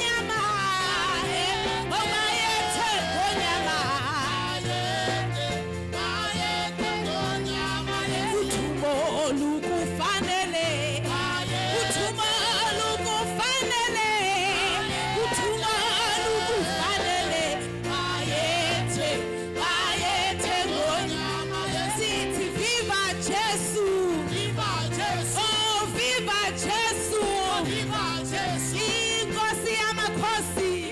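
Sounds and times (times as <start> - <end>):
person singing worship song: 0.0 - 30.9.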